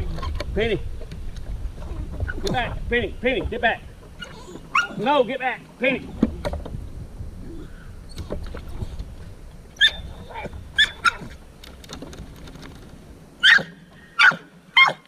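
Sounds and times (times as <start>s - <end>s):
low rumble: 0.0s - 4.8s, 6.0s - 13.4s
dog yipping and whining: 4.2s - 5.0s, 9.8s - 11.3s, 13.4s - 15.0s.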